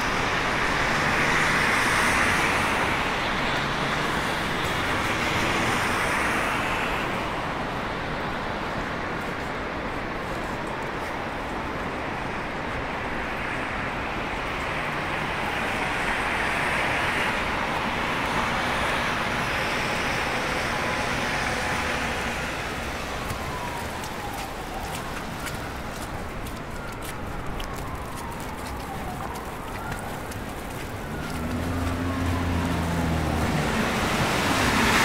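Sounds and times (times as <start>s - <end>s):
footsteps crunching in snow: 21.3s - 34.8s.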